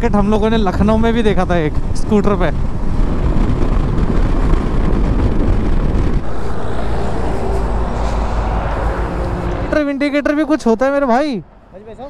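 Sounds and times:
heavy highway traffic rumble: 0.0s - 12.0s
wind and road noise: 0.0s - 12.0s
truck passing: 6.0s - 11.7s
motorcycle engine: 6.2s - 10.1s.

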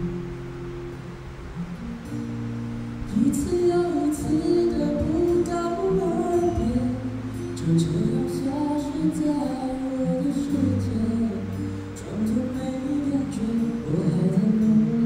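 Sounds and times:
acoustic guitar: 0.0s - 15.0s
person singing: 3.1s - 15.0s.

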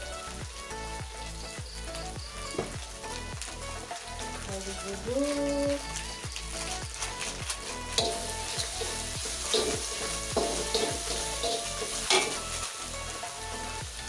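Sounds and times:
paste sizzling in hot oil: 0.0s - 14.0s
metal spatula scraping wok: 6.6s - 13.8s.

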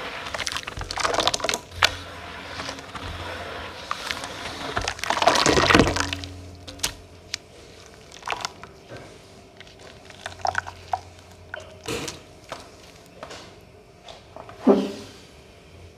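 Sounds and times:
wet squelches: 0.2s - 13.1s
bubbles popping: 9.7s - 11.8s.

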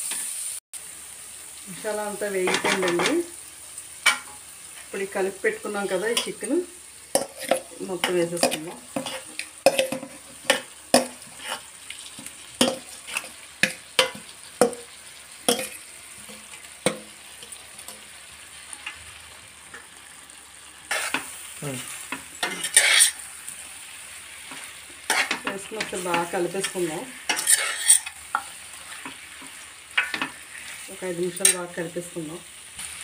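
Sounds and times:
food sizzling: 0.0s - 33.0s
stirring in a pot: 7.1s - 14.8s, 20.8s - 23.6s, 24.4s - 31.8s
steel spoon scraping a bowl: 22.4s - 23.2s, 27.3s - 28.2s.

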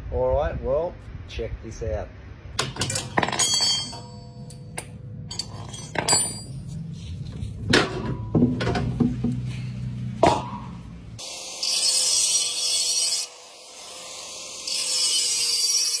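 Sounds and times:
metal tools clinking on steel: 2.6s - 6.8s.

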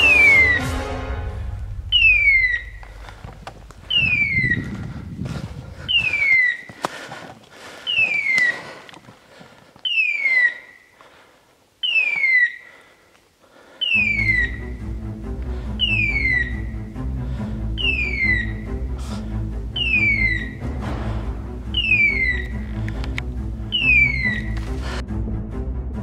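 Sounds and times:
rustling through brush: 2.6s - 13.8s
twigs snapping: 6.0s - 10.0s, 22.3s - 23.4s, 24.3s - 24.9s.

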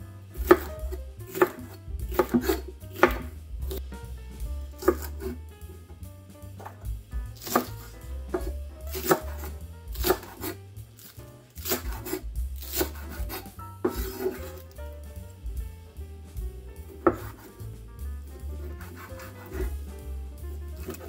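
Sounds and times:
knife chopping on wooden board: 0.4s - 3.8s, 4.8s - 5.4s, 6.6s - 14.7s, 17.0s - 17.6s, 18.6s - 19.9s, 20.8s - 21.0s.

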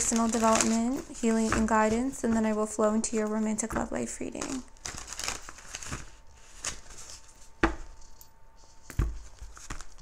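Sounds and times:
cards being shuffled: 8.9s - 10.0s.

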